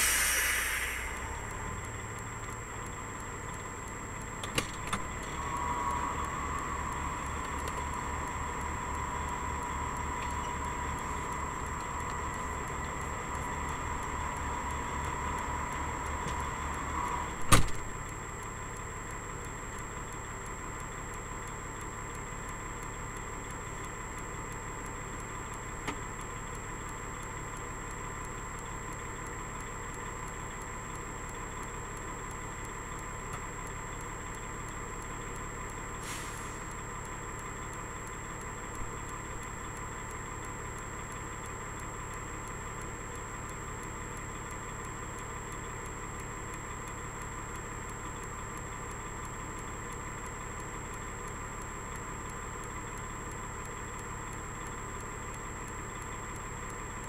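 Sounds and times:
diesel truck engine idling: 0.0s - 57.0s.

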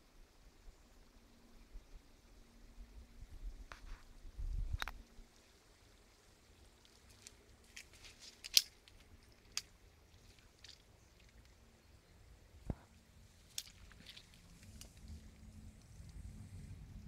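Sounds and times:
dry leaves and twigs crackling: 3.7s - 16.3s.

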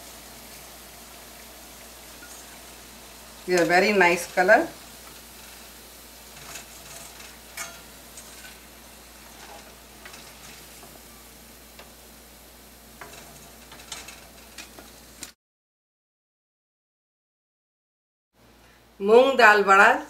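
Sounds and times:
fritters sizzling in hot oil: 0.0s - 15.4s
metal spoon scraping wok: 6.3s - 11.4s, 13.0s - 15.0s.

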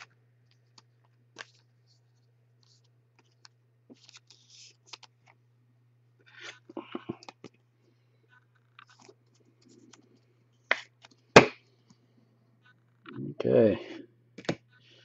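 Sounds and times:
cards clicking and rustling: 2.6s - 5.4s.

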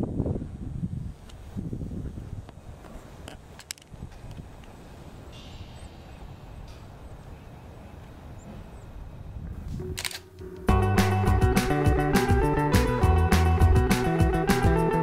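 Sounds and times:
brief hiss: 5.3s - 6.9s
sharp clicks: 9.8s - 10.7s.

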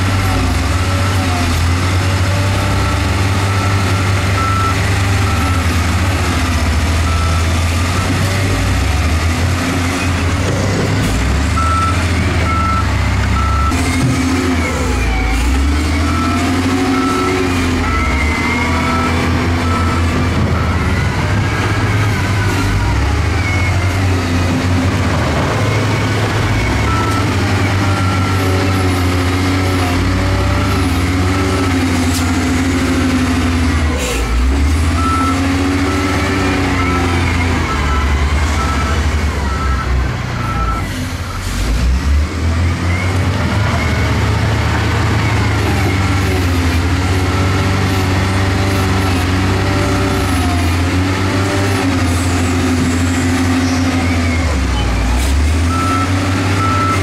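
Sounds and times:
heavy diesel machinery engine: 0.0s - 57.0s
reversing beeper: 3.4s - 5.8s, 6.4s - 8.8s, 10.8s - 24.6s, 25.4s - 28.9s, 34.8s - 41.5s, 52.6s - 57.0s.

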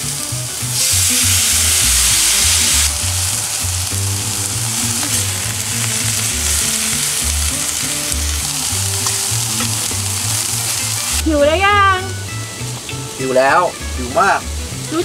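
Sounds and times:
broth sizzling in frying pan: 0.0s - 15.0s
spatula stirring pan: 0.8s - 11.2s.

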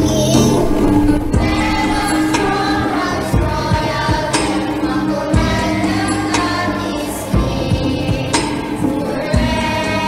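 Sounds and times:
children's choir singing: 0.0s - 10.0s
musical accompaniment: 0.0s - 10.0s.

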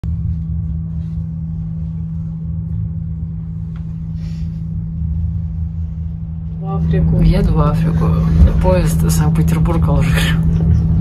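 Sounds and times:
constant low hum: 0.0s - 11.0s
moving vehicle rumble: 0.0s - 11.0s.

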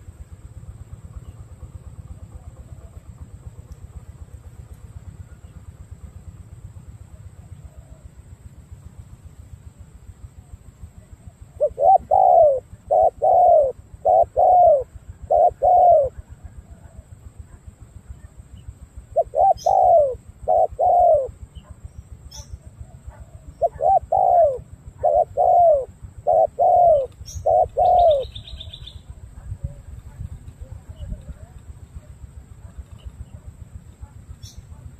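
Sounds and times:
dove cooing: 11.0s - 17.6s, 19.1s - 34.9s.

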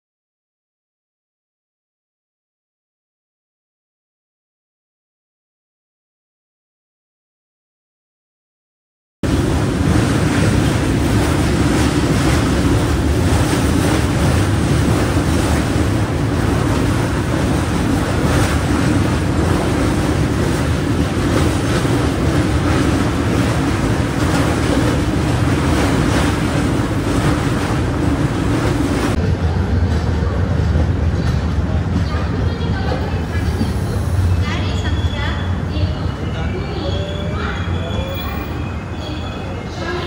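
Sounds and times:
dull hum: 9.2s - 31.8s
rush of wind: 9.2s - 36.7s
train wheels rumbling on rails: 9.2s - 40.0s.

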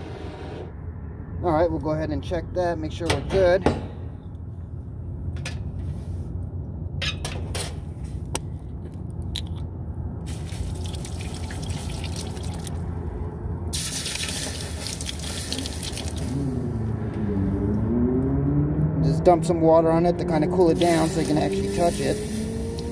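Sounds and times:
water hissing on hot metal: 13.7s - 16.4s, 20.7s - 22.9s.

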